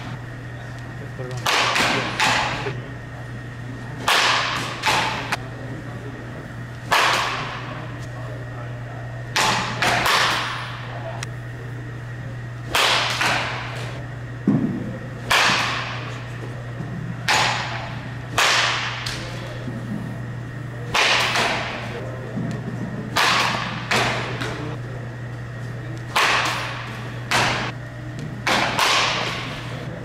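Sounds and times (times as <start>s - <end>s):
bat hitting ball cracks: 4.0s - 5.3s, 9.4s - 10.6s, 15.2s - 16.0s, 20.9s - 21.8s.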